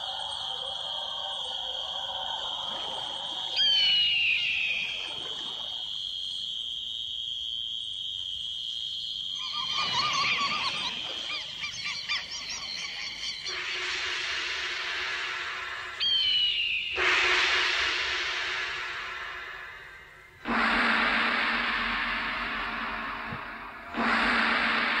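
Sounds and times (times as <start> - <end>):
synth chirps: 0.0 - 6.5, 9.0 - 14.1.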